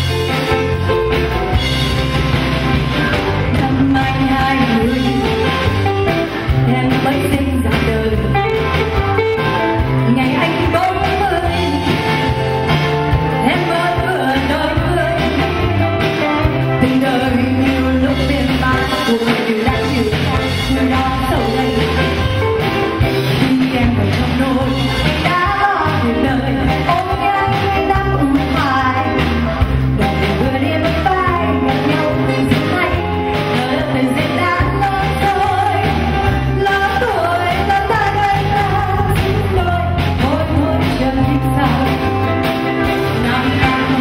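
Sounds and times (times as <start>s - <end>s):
live band playing pop song: 0.0s - 44.0s.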